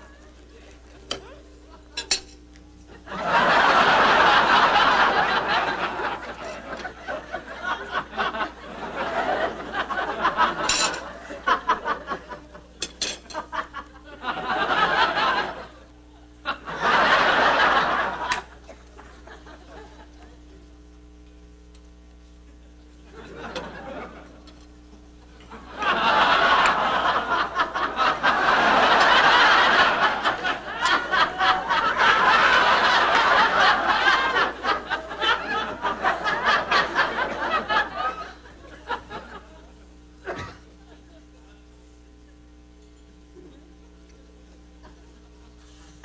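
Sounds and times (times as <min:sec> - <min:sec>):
tableware clinking: 0:02.0 - 0:02.4, 0:10.6 - 0:11.1, 0:12.8 - 0:13.4
audience laughing: 0:02.9 - 0:20.7, 0:23.1 - 0:24.5, 0:25.5 - 0:42.5, 0:44.4 - 0:45.9.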